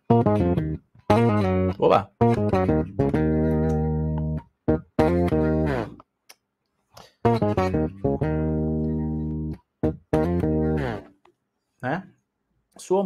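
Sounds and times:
electric bass low notes: 0.0s - 6.0s, 7.3s - 11.0s.

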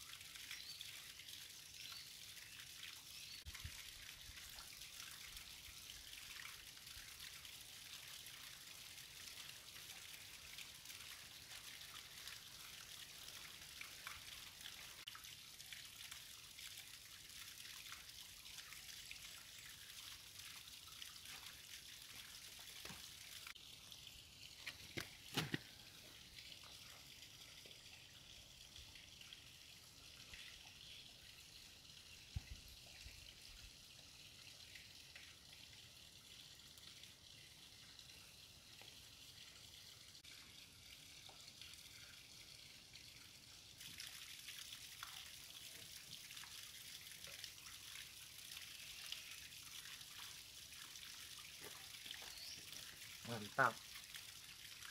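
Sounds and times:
trickle of running water: 0.0s - 54.9s.

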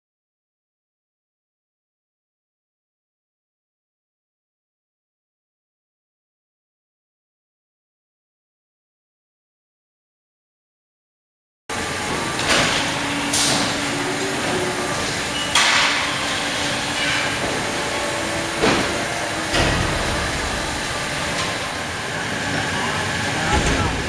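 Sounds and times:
processing machinery running: 11.7s - 24.0s
sharp knocks and clatters: 12.1s - 21.8s.

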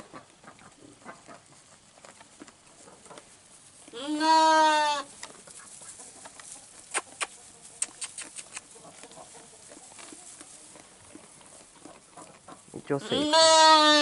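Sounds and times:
sheep bleating: 3.9s - 5.1s, 12.9s - 14.0s.

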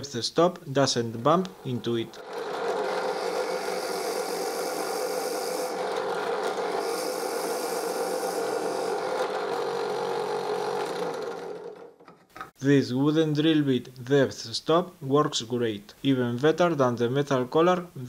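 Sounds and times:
drill press boring into wood: 1.6s - 12.1s.

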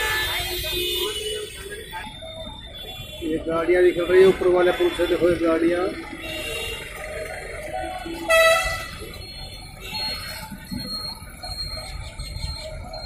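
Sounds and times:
vehicle horn honking: 0.0s - 1.6s, 8.2s - 9.0s
road traffic: 0.0s - 13.0s
high-pitched beep: 9.0s - 13.0s.

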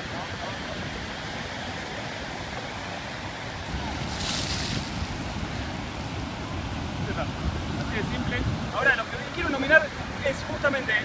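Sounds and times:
surf breaking: 3.6s - 6.2s.

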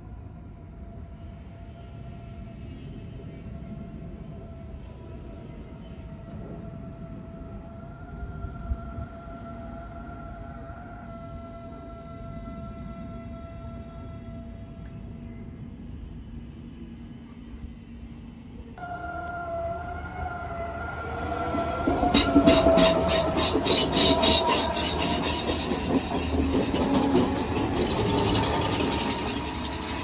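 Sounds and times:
electric train whine: 0.0s - 30.0s
wheels clattering over rail joints: 22.0s - 30.0s.

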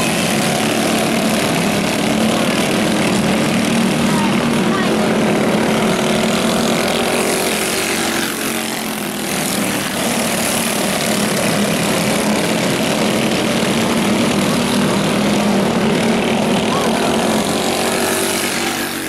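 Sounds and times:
kart engines buzzing: 0.0s - 19.0s.

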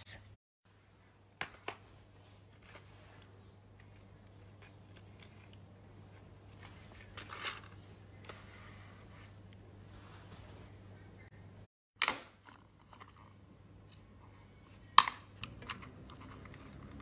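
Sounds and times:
low steady hum: 0.7s - 11.7s.

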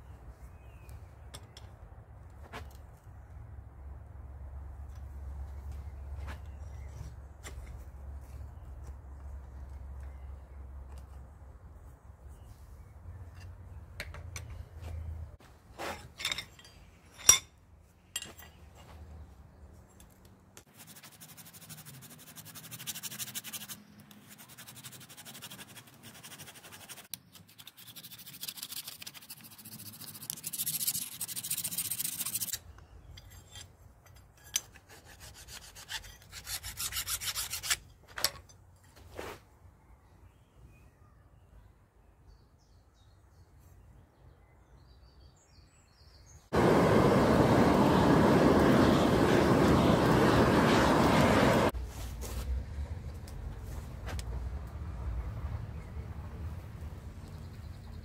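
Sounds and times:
hand file rasping on steel: 34.4s - 37.8s.

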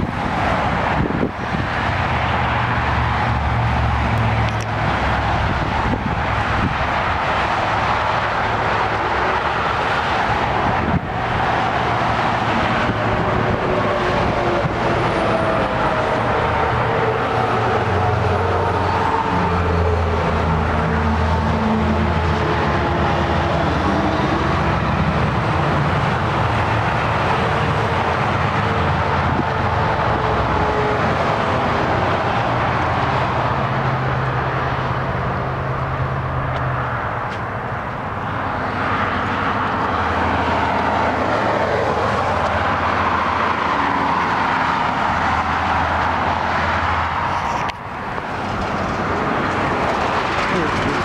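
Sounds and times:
traffic engines rushing: 0.0s - 51.0s.

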